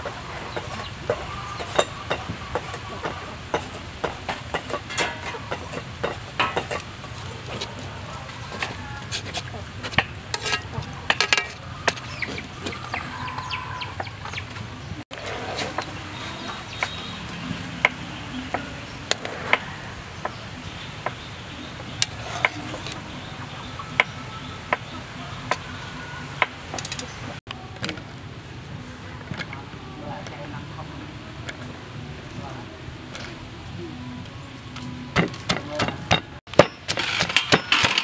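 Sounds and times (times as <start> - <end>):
chickens clucking: 0.0 - 27.7.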